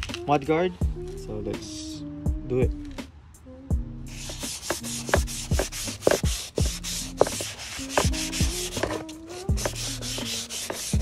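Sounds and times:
music with steady beat: 0.0s - 3.1s, 3.7s - 11.0s
sandpaper rubbing: 4.1s - 11.0s.

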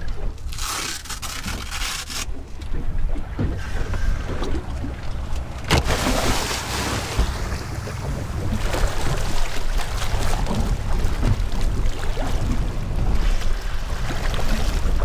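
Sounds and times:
churning water: 0.0s - 15.0s
water moving around hull: 0.0s - 15.0s
wind rumble on microphone: 2.3s - 15.0s
splash into water: 5.7s - 7.7s.

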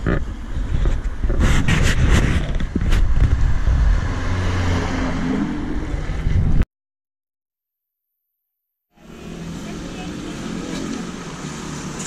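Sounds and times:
deep rumble on microphone: 0.0s - 4.5s, 5.6s - 6.6s
vehicle engine running: 9.0s - 12.0s.

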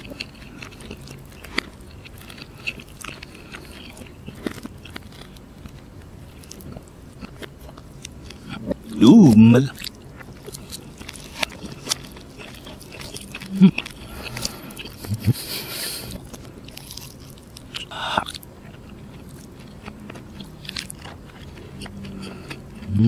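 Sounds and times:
biting and chewing: 0.0s - 23.0s
fried chicken crust crackling: 9.6s - 22.6s
person humming low: 15.0s - 15.8s.

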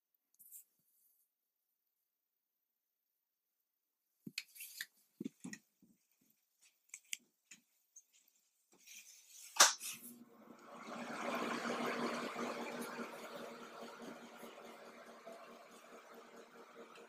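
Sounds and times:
steady mechanical hum: 10.0s - 17.0s.

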